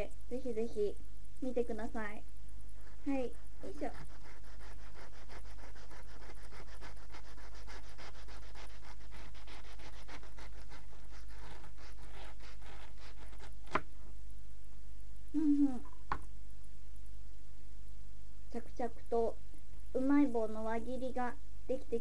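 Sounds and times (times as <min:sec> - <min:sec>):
knife sawing through snack: 0:02.8 - 0:13.5.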